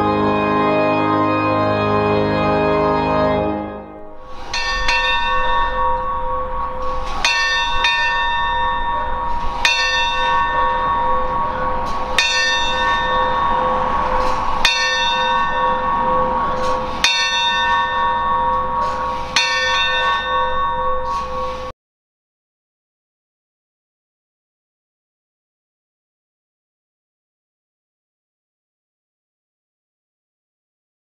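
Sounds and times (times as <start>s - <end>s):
church bell tolling: 0.0s - 21.7s
lingering bell hum: 0.0s - 21.7s.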